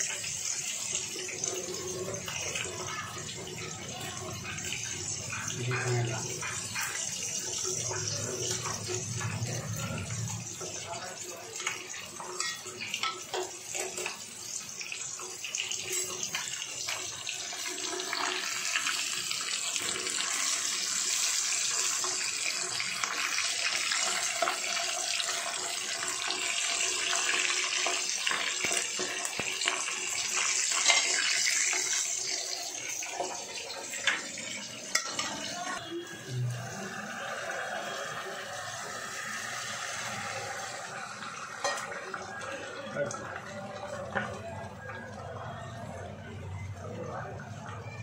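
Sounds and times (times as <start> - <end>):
fish sizzling in oil: 0.0 - 44.9.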